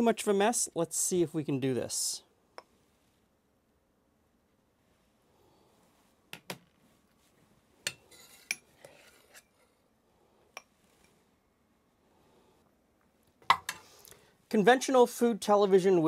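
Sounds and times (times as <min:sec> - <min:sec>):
ladle scraping in pot: 0:07.9 - 0:09.6.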